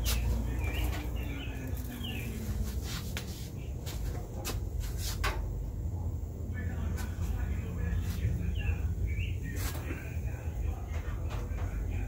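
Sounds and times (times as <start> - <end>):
birds chirping: 0.0 - 4.1, 6.6 - 12.0.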